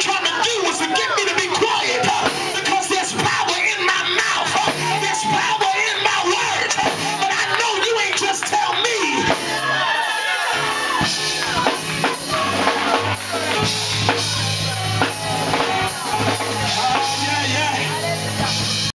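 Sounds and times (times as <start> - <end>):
live band music: 0.0 - 18.9.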